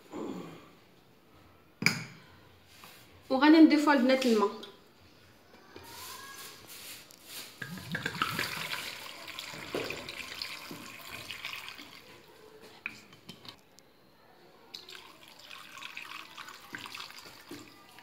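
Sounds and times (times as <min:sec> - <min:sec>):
water pouring into a pot: 0:07.6 - 0:12.3, 0:14.7 - 0:18.0.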